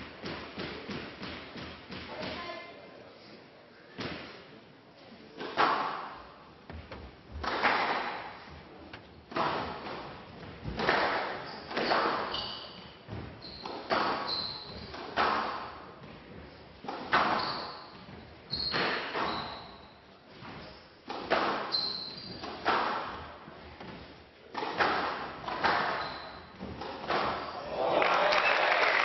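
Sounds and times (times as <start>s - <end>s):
squash ball hitting walls: 0.1s - 2.4s, 5.4s - 8.4s, 9.3s - 12.4s, 13.0s - 16.1s, 16.8s - 19.4s, 21.0s - 27.6s
shoes squeaking on court: 11.4s - 15.2s, 17.1s - 20.9s, 21.6s - 23.2s, 25.4s - 27.6s.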